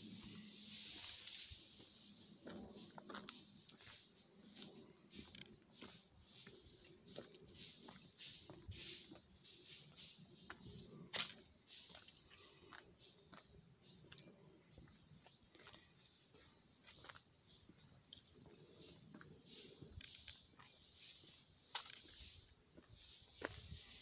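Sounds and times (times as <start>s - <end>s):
insect chorus drone: 0.0s - 24.0s
footsteps on dirt: 0.3s - 17.8s.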